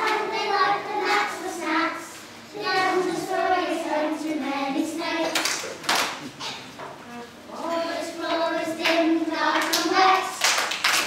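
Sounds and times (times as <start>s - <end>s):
children singing in unison: 0.0s - 5.7s, 7.6s - 10.7s.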